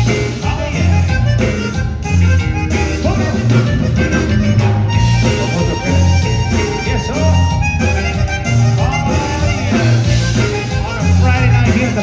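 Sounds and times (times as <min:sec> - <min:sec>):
button accordion: 0:00.0 - 0:12.0
live band playing: 0:00.0 - 0:12.0.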